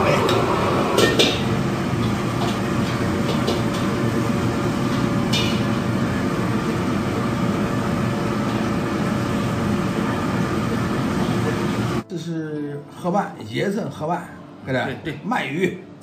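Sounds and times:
kitchen mechanical rushing noise: 0.0s - 12.0s.

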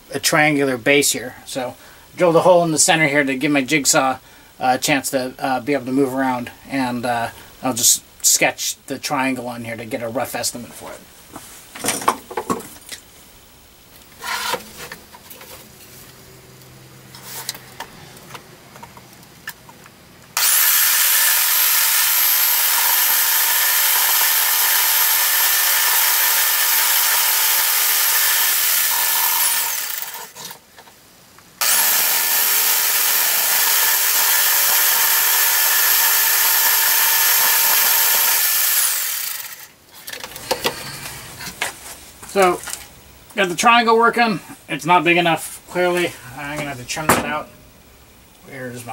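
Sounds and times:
jigsaw cutting plastic: 20.4s - 30.6s, 31.6s - 39.7s.

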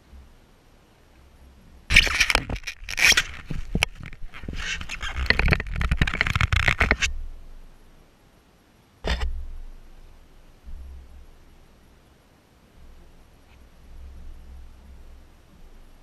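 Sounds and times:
sharp clicks: 1.9s - 7.1s
fabric rustling on microphone: 1.9s - 7.2s.

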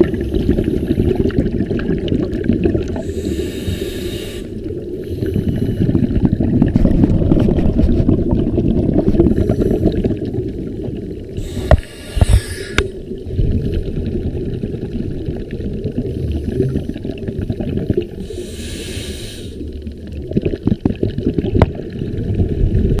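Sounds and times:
underwater exhaled bubbles: 0.0s - 23.0s
regulator inhalation hiss: 3.0s - 5.8s, 11.4s - 13.0s, 18.2s - 19.6s.

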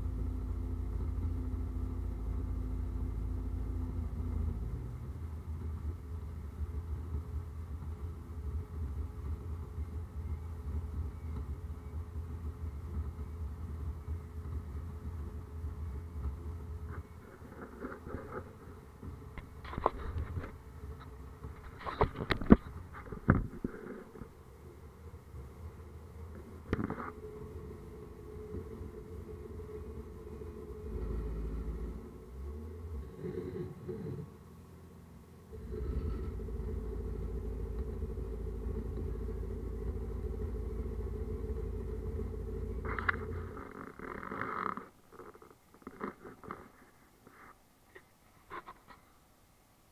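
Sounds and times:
faint steady whine: 0.0s - 49.9s.

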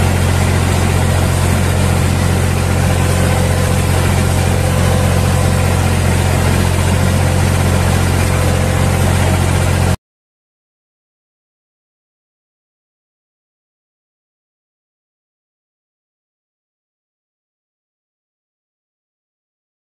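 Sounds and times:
tractor engine running: 0.0s - 10.0s.

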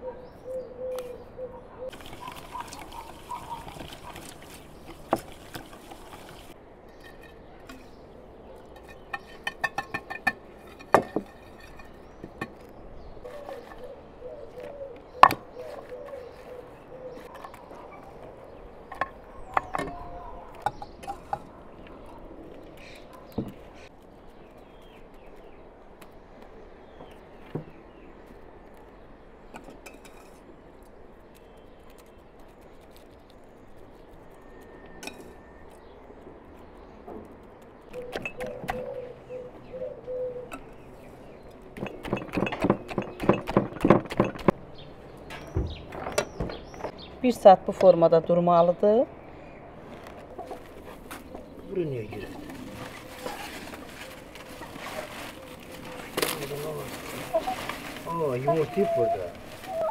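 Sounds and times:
dove cooing: 0.0s - 6.6s, 13.2s - 23.9s, 37.9s - 40.8s, 50.2s - 59.9s.

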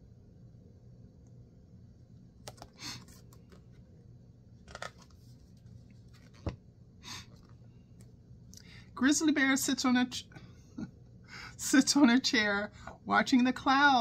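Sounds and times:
faint low room hum: 0.0s - 14.0s
paper page rustles: 4.6s - 6.5s.

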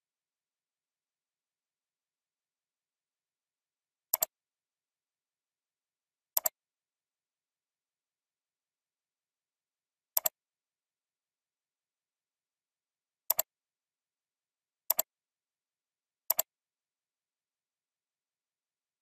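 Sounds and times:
mouse button clicks: 4.1s - 4.3s, 6.4s - 6.6s, 10.2s - 10.4s, 13.3s - 13.5s, 16.3s - 16.5s.

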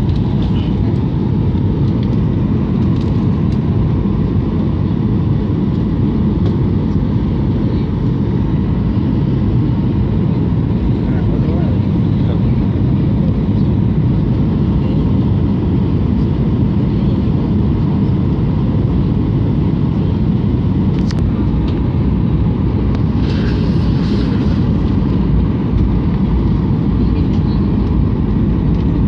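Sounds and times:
jet engine cabin rumble: 0.0s - 29.0s.

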